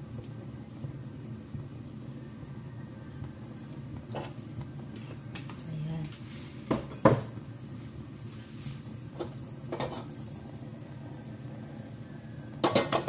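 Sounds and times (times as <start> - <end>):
gas burner rumbling: 0.0 - 13.0
wok clattering on burner: 9.1 - 10.2, 12.6 - 13.0.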